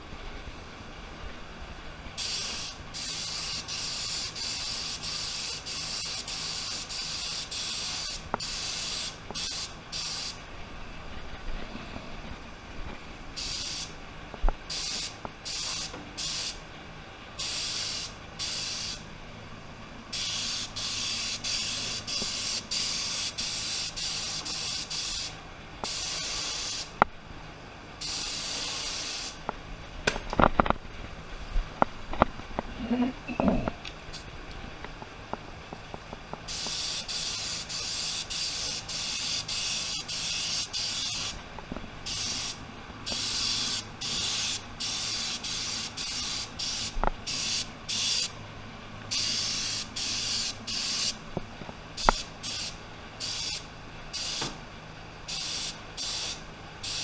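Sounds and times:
spray gun hissing: 2.2 - 10.4, 13.4 - 14.0, 14.7 - 16.6, 17.4 - 19.0, 20.1 - 26.9, 28.0 - 29.4, 36.4 - 41.4, 42.0 - 48.4, 49.1 - 51.2, 52.0 - 54.6, 55.3 - 57.0.

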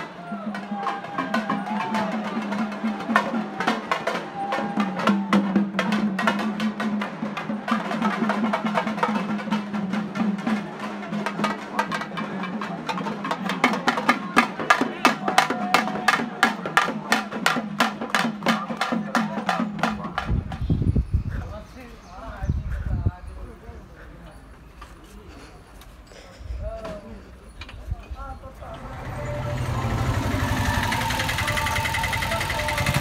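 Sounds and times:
drums beating fast: 0.0 - 20.9, 28.8 - 33.0
voices: 0.0 - 33.0.

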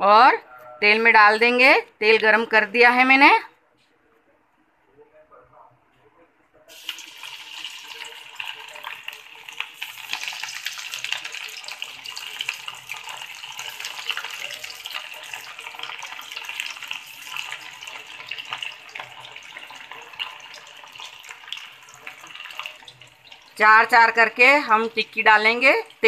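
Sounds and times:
deep-frying sizzle with pops: 6.7 - 26.0.

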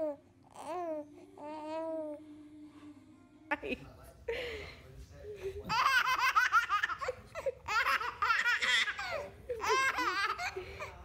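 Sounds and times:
baby laughing: 5.6 - 10.9.

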